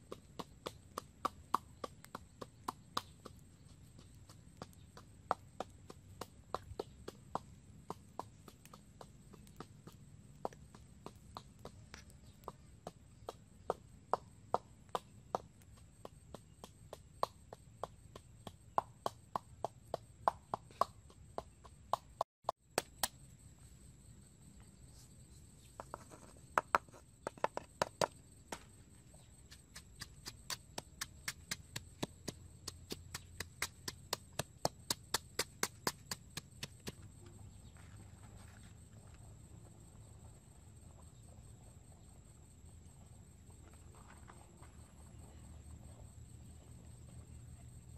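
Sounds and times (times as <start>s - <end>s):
pestle pounding in mortar: 0.0s - 23.2s, 29.4s - 37.1s.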